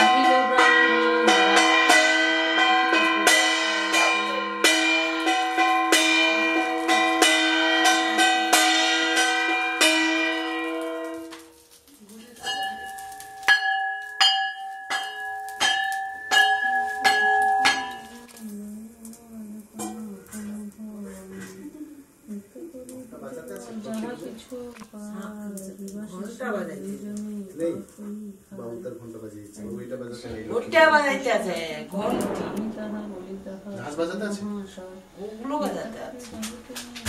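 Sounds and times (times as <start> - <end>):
bell struck slowly: 0.0 - 11.3, 12.4 - 18.3.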